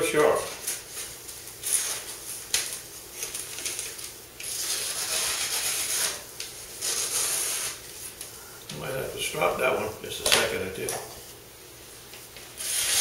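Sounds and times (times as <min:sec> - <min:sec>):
knife slicing paper: 0:01.6 - 0:07.8, 0:12.5 - 0:13.0.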